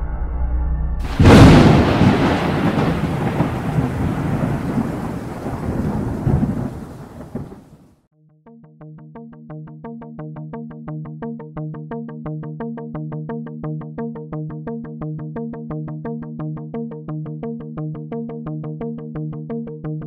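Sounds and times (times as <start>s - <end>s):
thunderclap and rumbling thunder: 1.0s - 7.9s.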